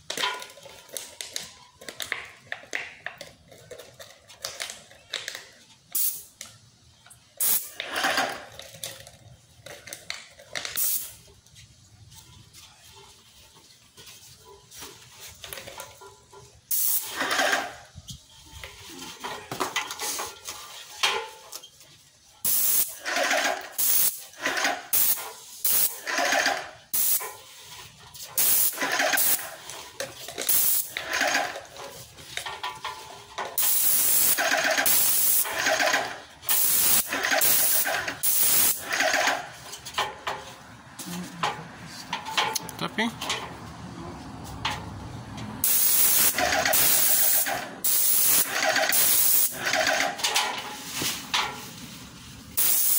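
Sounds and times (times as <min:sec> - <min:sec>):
paint sprayer gun hissing: 0:07.4 - 0:07.7, 0:10.8 - 0:11.1, 0:16.7 - 0:17.6, 0:22.5 - 0:23.0, 0:23.8 - 0:26.0, 0:27.0 - 0:27.3, 0:28.4 - 0:29.6, 0:30.5 - 0:30.9, 0:33.6 - 0:38.8, 0:45.6 - 0:50.0, 0:52.6 - 0:52.9.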